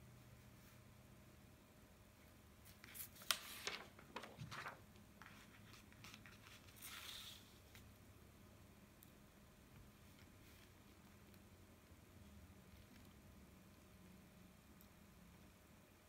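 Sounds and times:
paper rustling: 2.6s - 7.8s.

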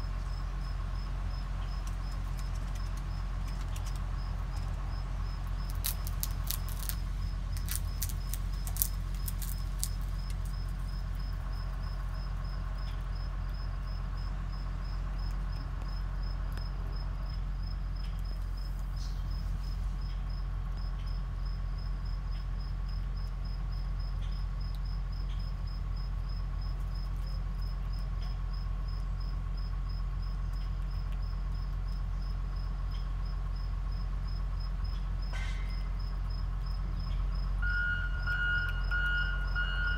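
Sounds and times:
cricket chirping: 0.0s - 39.9s
low hum: 0.0s - 39.9s
squirrel chewing clicks: 1.3s - 20.2s
squirrel cracking peanut shell: 1.6s - 12.2s.

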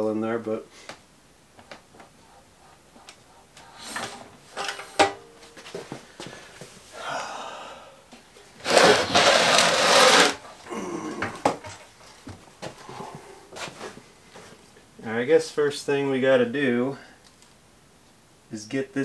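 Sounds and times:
loud scraping rush: 2.1s - 6.2s, 8.6s - 10.4s.

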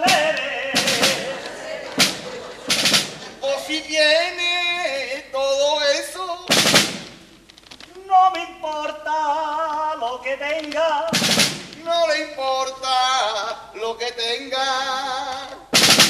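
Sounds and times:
men singing wavering notes: 0.0s - 2.0s
snare drum rolls: 0.0s - 3.9s, 6.5s - 7.3s, 11.1s - 11.9s, 15.7s - 16.0s.

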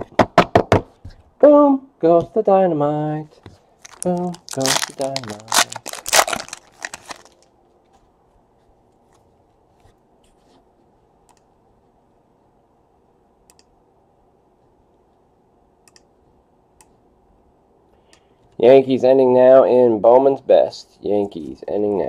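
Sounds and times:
foil wrapper crinkling: 3.8s - 7.4s.

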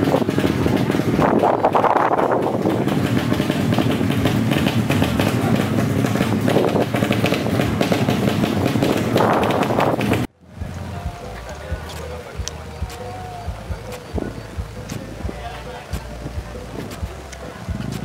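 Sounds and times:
motorcycle engines running: 0.0s - 18.0s
voices: 0.0s - 18.0s.

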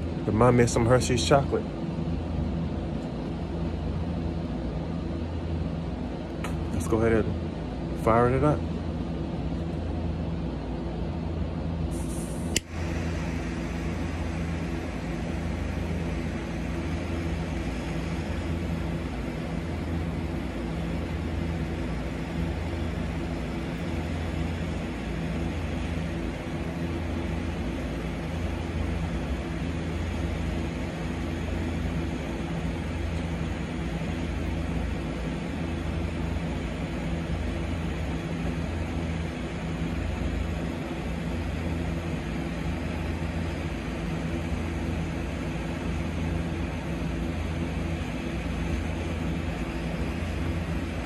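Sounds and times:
low hum: 0.0s - 51.0s
torch lighter flame hissing: 11.7s - 51.0s.

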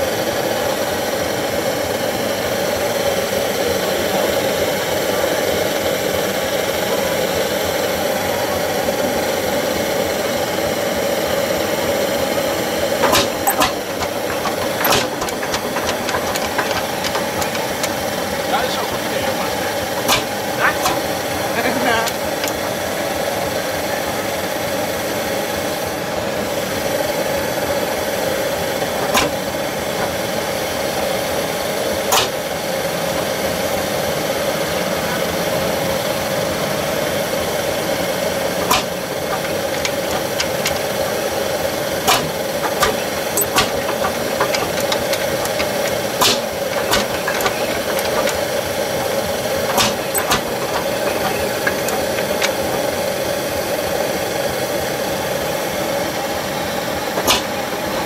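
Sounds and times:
tractor engine running: 0.0s - 58.0s
sharp knocks or clicks: 13.0s - 21.2s, 29.0s - 30.2s, 38.6s - 41.0s, 42.1s - 52.9s.

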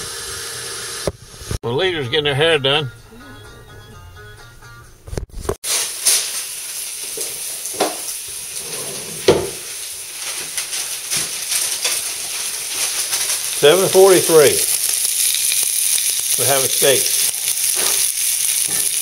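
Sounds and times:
steak sizzling in a pan: 5.6s - 19.0s.

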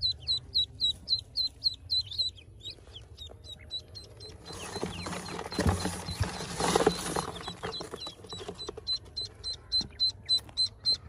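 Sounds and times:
ducklings peeping: 0.0s - 11.0s
handling rustles and knocks: 4.4s - 8.9s.

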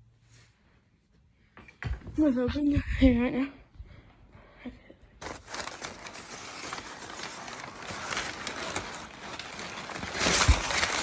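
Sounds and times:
packing paper crinkling: 5.2s - 11.0s.

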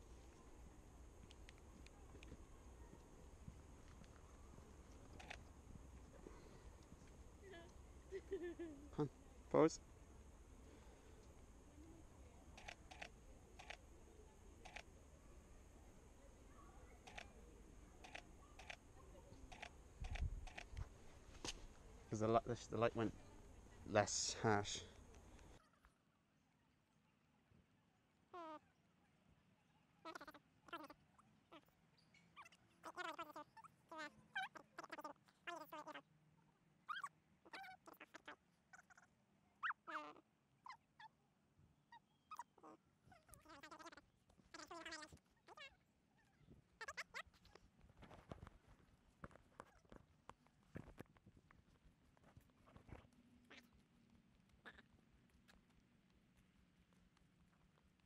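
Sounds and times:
camera shutter clicks: 12.6s - 13.8s, 17.1s - 17.3s, 18.0s - 18.8s
faint short animal calls: 16.5s - 17.4s, 28.3s - 28.8s, 30.0s - 36.1s, 36.8s - 41.2s, 41.9s - 47.6s, 52.6s - 54.0s, 54.6s - 55.6s.

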